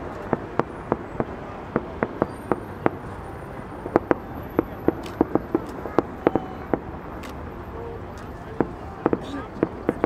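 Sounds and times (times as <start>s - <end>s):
distant fireworks bangs: 0.0s - 3.2s, 3.8s - 7.0s, 8.5s - 10.0s
steady background noise: 0.0s - 10.0s.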